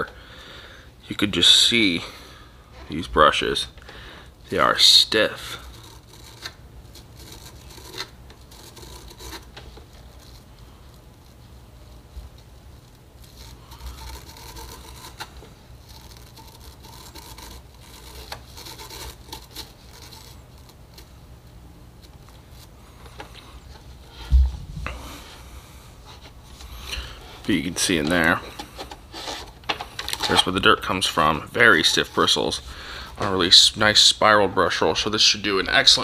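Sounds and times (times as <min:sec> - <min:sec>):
brush bristles scraping: 0:04.5 - 0:36.0
dull thump: 0:24.2 - 0:25.0.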